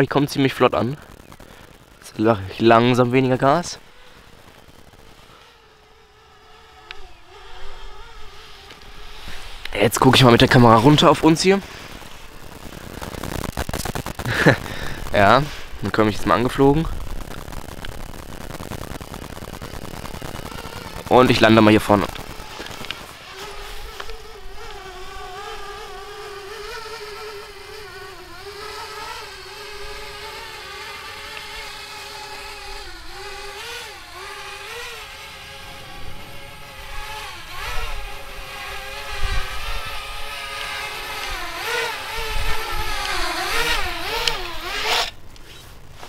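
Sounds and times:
drone propellers humming: 0.0 - 46.0.

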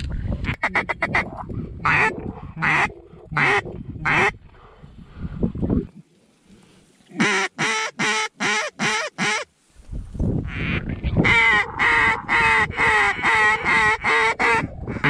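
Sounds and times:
duck call quacks: 0.5 - 4.3, 7.1 - 9.5, 10.5 - 15.0.

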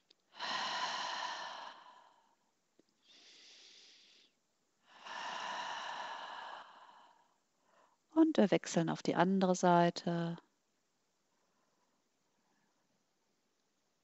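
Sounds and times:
woman breathing slowly: 0.2 - 8.1.

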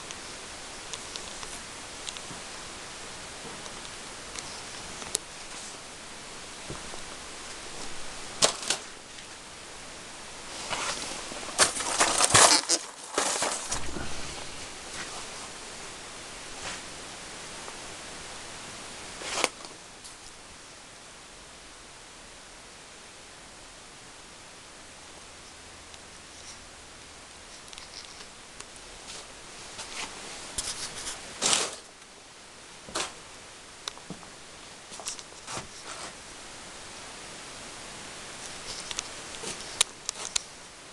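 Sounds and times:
rustling: 0.0 - 9.4, 10.4 - 17.0, 19.2 - 20.4, 25.4 - 26.7, 27.4 - 32.0, 32.8 - 33.2, 33.9 - 36.2, 38.3 - 40.7
steady hiss: 0.0 - 40.9
handling rustles and clicks: 7.5 - 9.3, 10.6 - 14.2, 27.5 - 32.0, 34.9 - 36.2, 38.4 - 40.6.

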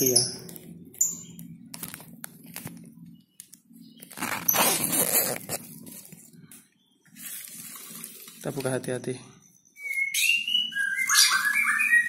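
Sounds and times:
plastic wrapping rustling: 4.0 - 6.2, 7.1 - 8.8.

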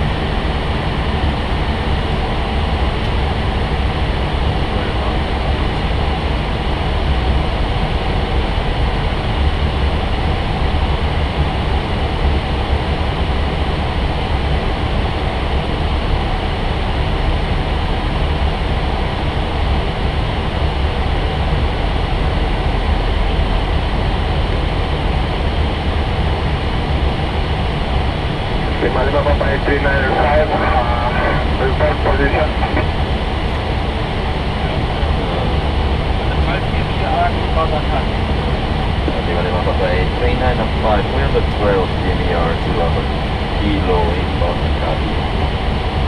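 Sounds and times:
aircraft cockpit rushing noise: 18.8 - 46.0.

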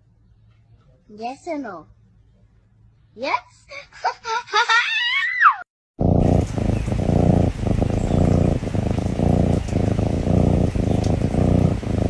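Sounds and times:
kitten purring: 6.0 - 12.0.

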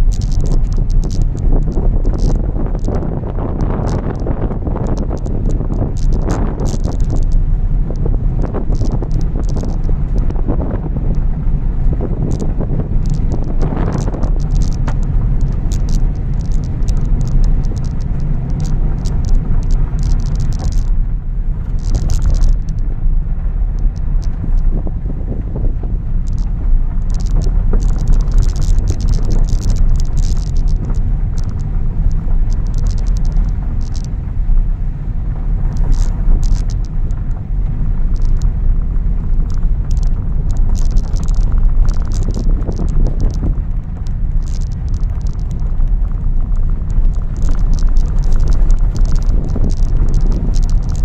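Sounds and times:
car engine and tyres rumbling: 0.0 - 51.0
gravel crackling under tyres: 0.0 - 51.0.

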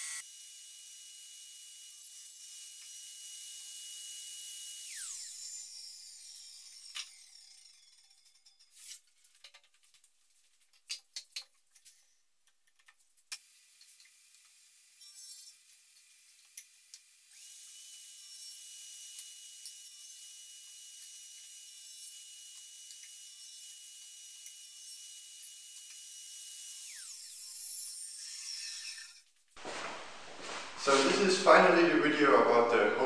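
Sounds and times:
table saw whining: 0.0 - 1.0, 4.5 - 9.0, 13.4 - 29.2.

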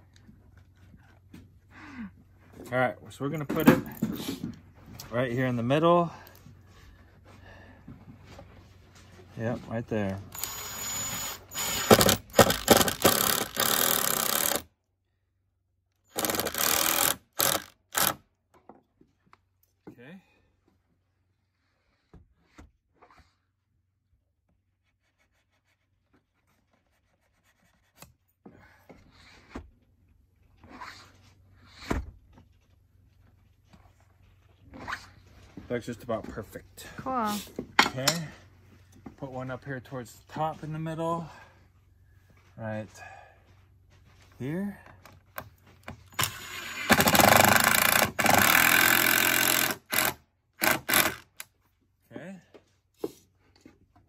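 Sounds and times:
cordless drill driving a screw: 10.3 - 14.7, 16.1 - 18.2, 46.1 - 51.5.

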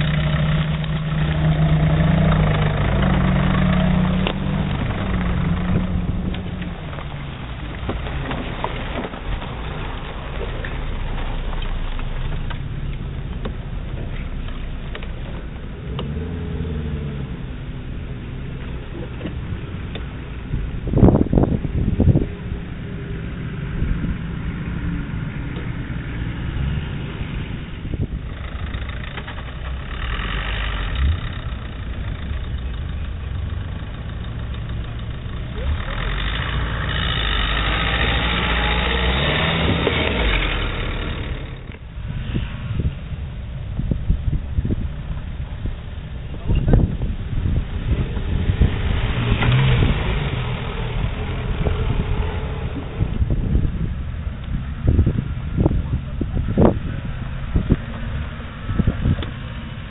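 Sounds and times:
tyres scrabbling over stones: 0.0 - 15.4
car engine revving: 0.0 - 59.9.

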